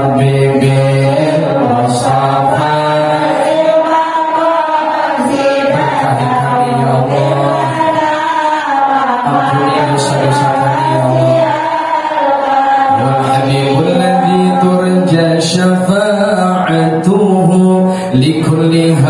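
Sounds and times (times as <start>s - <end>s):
devotional singing into a microphone: 0.0s - 19.0s.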